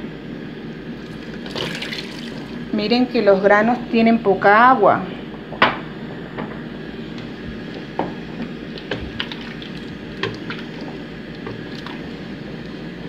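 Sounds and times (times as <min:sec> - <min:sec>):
wooden spoon stirring a pot: 0:08.3 - 0:12.4.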